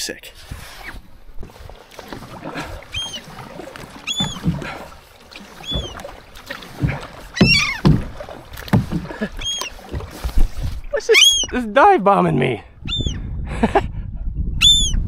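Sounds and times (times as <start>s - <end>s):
water: 0.0s - 15.0s
kayak knocks: 1.4s - 11.4s
gulls giving alarm cries: 2.8s - 4.8s, 5.4s - 6.1s, 6.8s - 8.0s, 9.3s - 10.0s, 11.0s - 11.6s, 12.8s - 13.2s.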